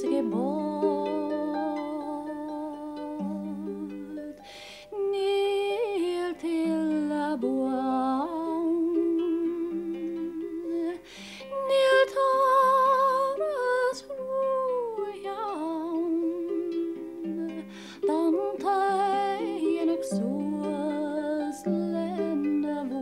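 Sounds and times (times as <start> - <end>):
plucked harp: 0.0 - 23.0
woman singing with vibrato: 0.0 - 23.0.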